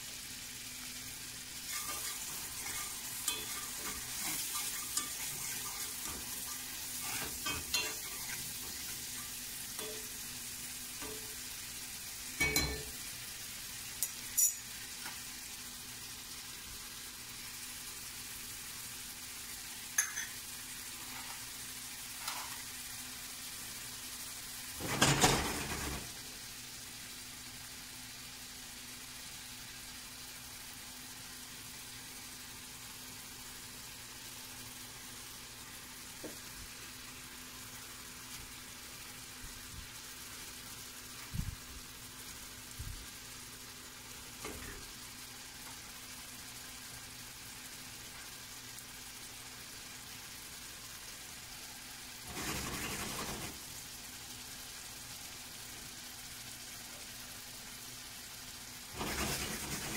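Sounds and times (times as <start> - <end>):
bacon sizzling in a skillet: 0.0 - 59.9
utensils clattering: 1.7 - 10.1
metallic clinks of utensils: 1.8 - 6.2, 7.1 - 8.4, 9.2 - 10.2, 12.4 - 12.9, 14.0 - 14.8, 20.0 - 20.4.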